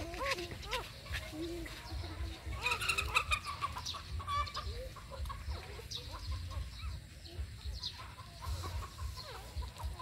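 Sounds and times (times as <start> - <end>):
high-pitched animal squeaks: 2.5 - 4.7.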